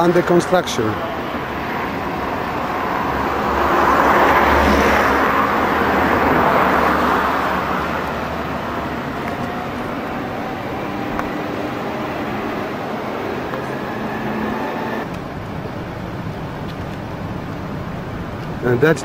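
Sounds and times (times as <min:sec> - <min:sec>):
car passing by: 0:00.0 - 0:15.2.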